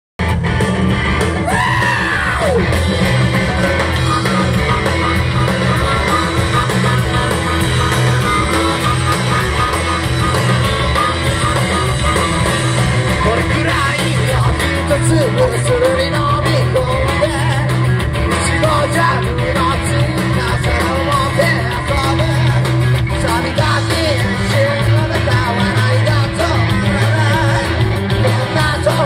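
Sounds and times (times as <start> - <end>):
drums: 0.2 - 29.0
electric guitar: 0.2 - 29.0
lead voice singing or shouting: 1.4 - 29.0.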